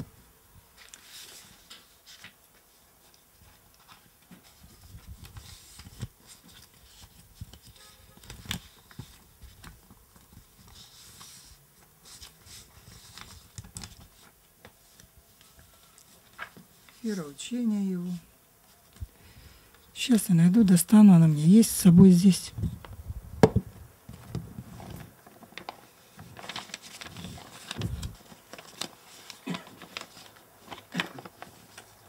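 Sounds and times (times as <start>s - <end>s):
paper rustling: 0.8s - 17.2s, 24.1s - 32.0s
microphone handling thumps: 22.5s - 25.0s.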